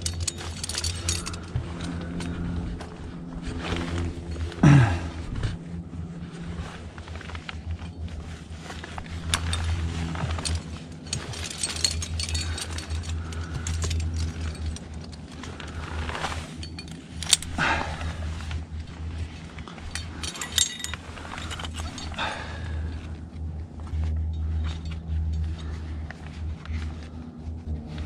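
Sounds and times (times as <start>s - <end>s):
carabiner clipping: 0.0s - 2.8s, 7.5s - 22.7s
metallic clinks of climbing gear: 0.0s - 5.7s, 6.3s - 28.0s
steady low rumble: 0.0s - 28.0s.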